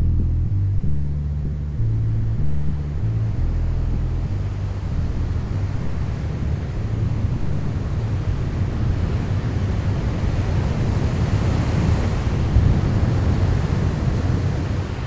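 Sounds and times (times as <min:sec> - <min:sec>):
wind rumbling on microphone: 0:00.0 - 0:15.0
surf washing on beach: 0:03.9 - 0:15.0.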